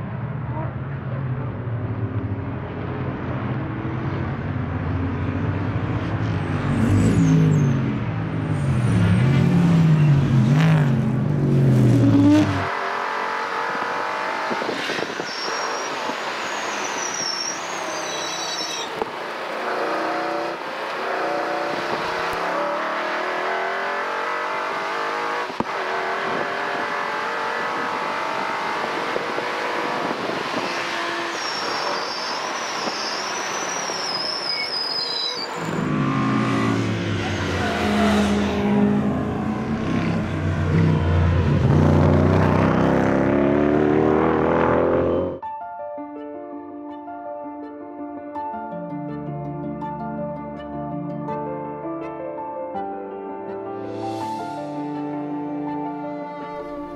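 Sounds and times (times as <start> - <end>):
race car engines passing: 0.0 - 45.4.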